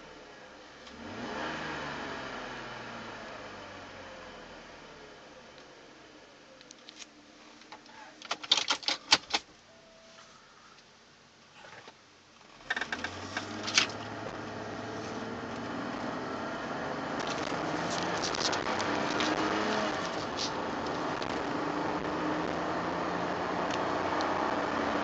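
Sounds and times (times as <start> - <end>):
car engine accelerating: 0.8 - 5.3, 12.6 - 25.0
sharp clicks and rattles: 7.7 - 9.5, 17.2 - 21.5
road noise: 12.6 - 25.0.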